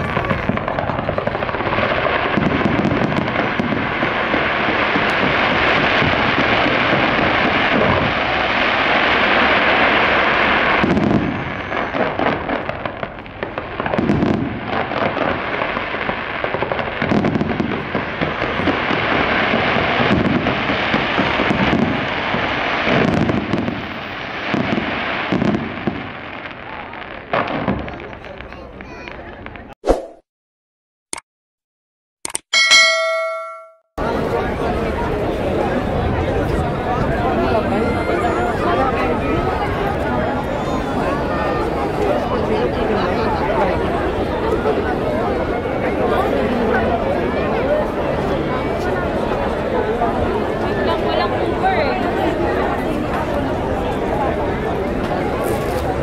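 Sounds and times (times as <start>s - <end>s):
fireworks booming: 0.0s - 29.8s
fireworks crackling: 0.0s - 29.8s, 34.0s - 56.0s.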